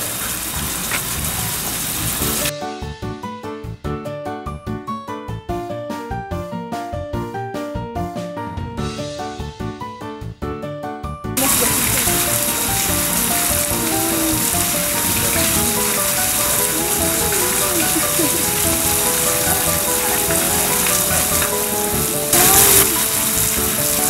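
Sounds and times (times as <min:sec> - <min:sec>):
water rushing hiss: 0:00.0 - 0:02.5, 0:11.4 - 0:24.0.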